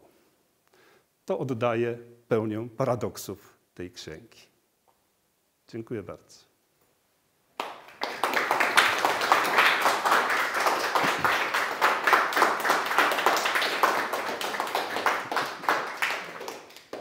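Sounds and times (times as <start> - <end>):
audience applauding: 7.6 - 17.0.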